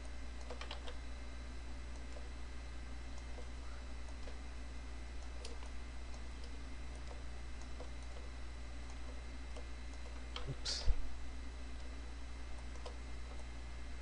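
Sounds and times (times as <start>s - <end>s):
low electrical hum: 0.0s - 14.0s
mouse and keyboard clicks: 0.4s - 1.0s, 5.2s - 5.8s, 12.6s - 13.5s.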